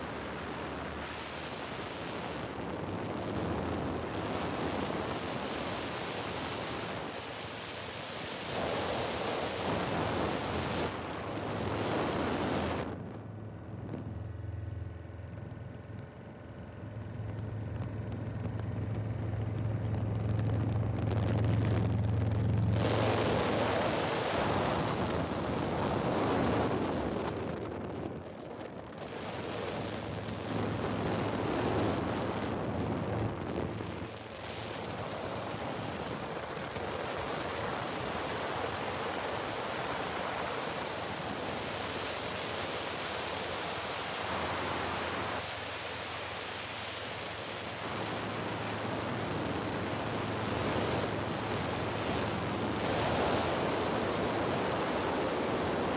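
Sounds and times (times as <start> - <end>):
rushing wind noise: 0.0 - 14.3, 17.0 - 55.9
low steady drone: 11.5 - 25.0.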